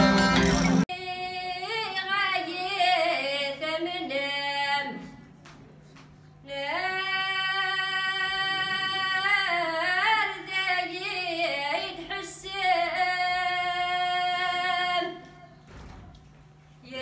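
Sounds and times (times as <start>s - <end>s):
woman singing unaccompanied: 0.9s - 5.2s, 6.4s - 15.5s.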